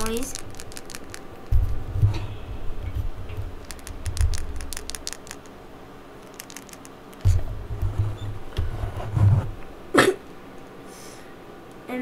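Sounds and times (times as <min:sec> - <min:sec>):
plastic toy clicks and taps: 0:03.6 - 0:05.5.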